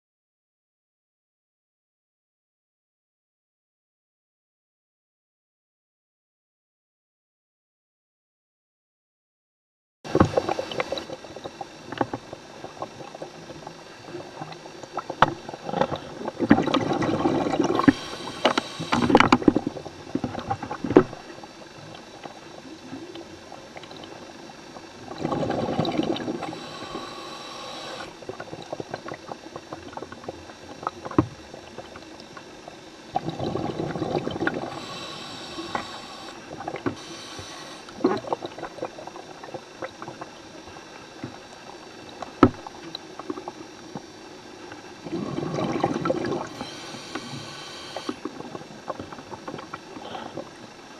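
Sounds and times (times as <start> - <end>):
regulator bubbling and hissing: 10.1 - 50.9.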